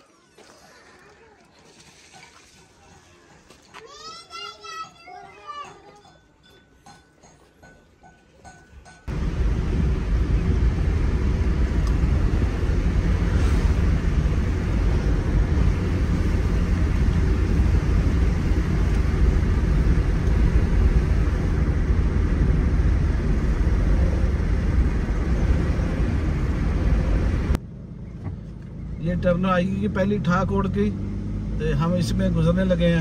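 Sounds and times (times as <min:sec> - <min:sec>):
car driving rumble: 0:09.1 - 0:33.0.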